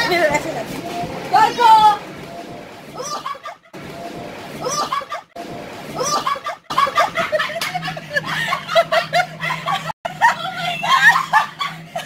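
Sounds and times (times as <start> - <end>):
blower humming: 0.0 - 12.0
woman laughing and giggling: 3.0 - 3.8, 6.0 - 12.0.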